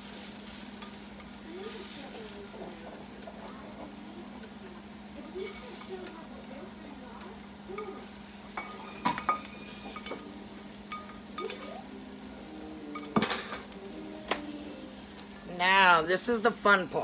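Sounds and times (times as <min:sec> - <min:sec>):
utensil scraping skillet: 0:00.0 - 0:11.8.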